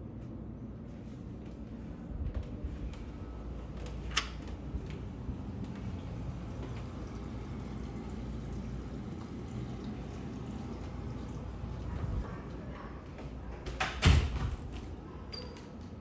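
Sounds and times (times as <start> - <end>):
steady low rumble: 0.0 - 8.1.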